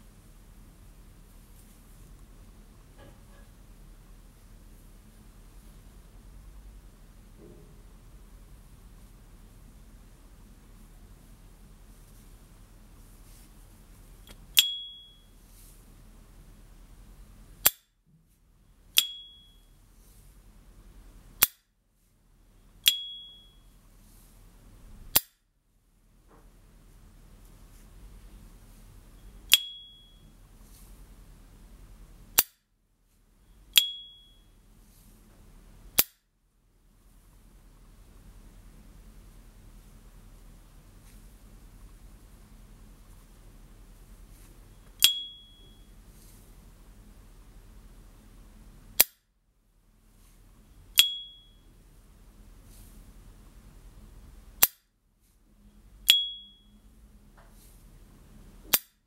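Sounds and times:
high clear ping: 14.6 - 15.3, 19.0 - 19.6, 22.8 - 23.6, 29.5 - 30.2, 33.8 - 34.4, 45.0 - 45.9, 51.0 - 51.6, 56.1 - 56.8.

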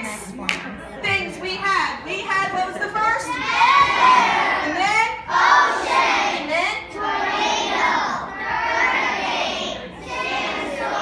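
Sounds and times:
children calling out: 3.2 - 4.7.

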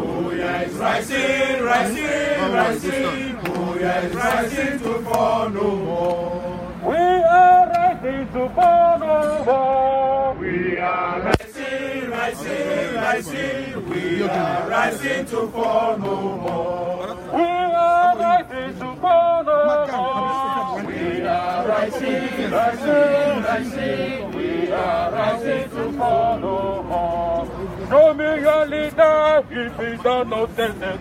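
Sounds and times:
men chanting a sung slogan: 0.0 - 31.0.

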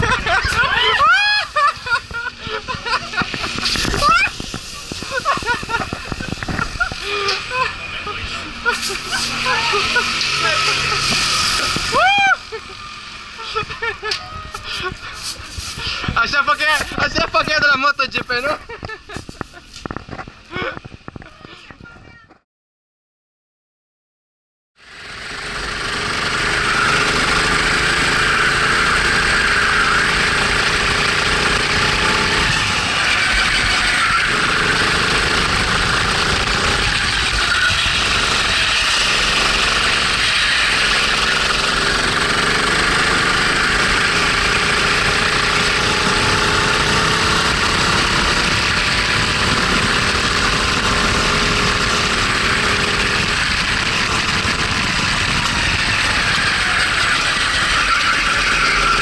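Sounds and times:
kart engine running hard: 0.0 - 21.6, 24.8 - 59.0
wind noise: 1.8 - 7.0.

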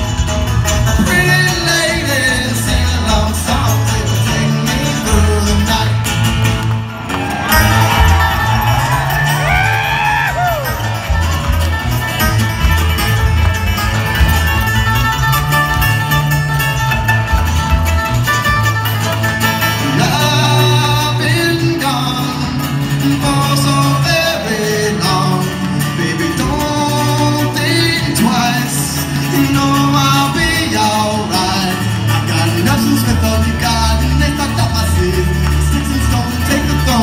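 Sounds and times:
acoustic guitar strumming: 0.0 - 37.0
banjo: 0.0 - 37.0
person singing: 1.0 - 6.5, 19.8 - 37.0.

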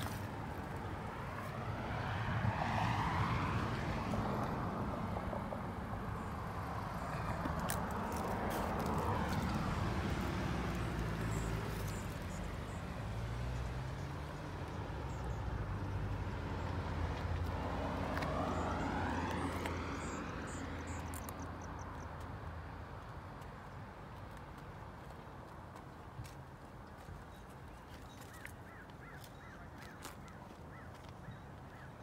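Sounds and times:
vehicles passing: 0.0 - 32.0
low engine hum: 0.3 - 22.4.

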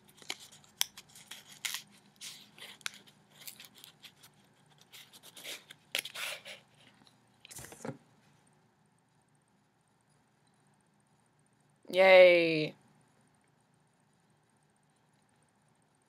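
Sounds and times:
paper rustling and scraping: 0.0 - 7.0.

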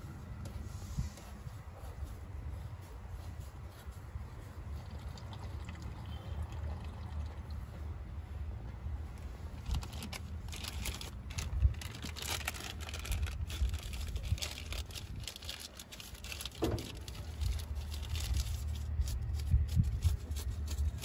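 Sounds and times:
plastic crinkling and rustling: 9.6 - 21.0.

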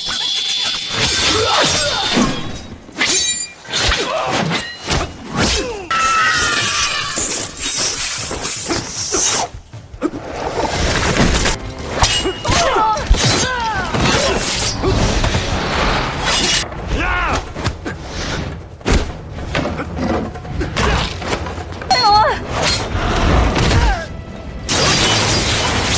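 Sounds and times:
film music: 9.5 - 25.9
steel blades clashing: 11.5 - 14.9, 16.1 - 16.6.

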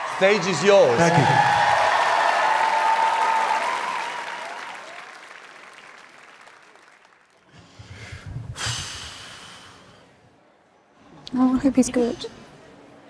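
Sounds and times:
audience applause: 0.0 - 7.6.

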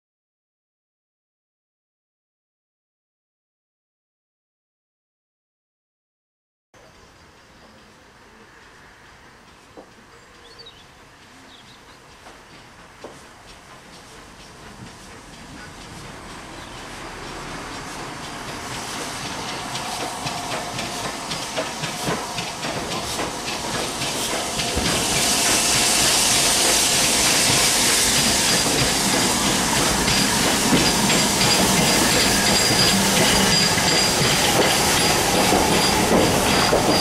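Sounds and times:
steam locomotive passing: 6.8 - 37.0
steam hiss: 12.0 - 37.0.

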